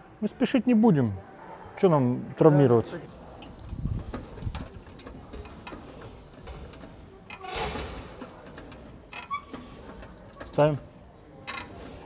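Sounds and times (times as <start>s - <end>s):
gym equipment clicks and clinks: 11.4s - 12.0s.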